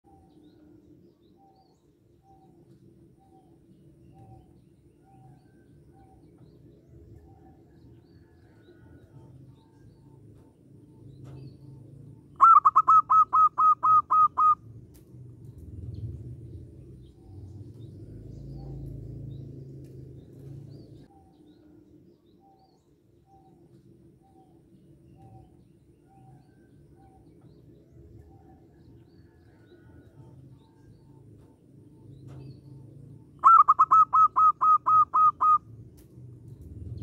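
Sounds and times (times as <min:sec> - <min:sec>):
low steady hum: 0:00.0 - 0:37.0
dove calling: 0:02.2 - 0:14.7, 0:23.3 - 0:36.0.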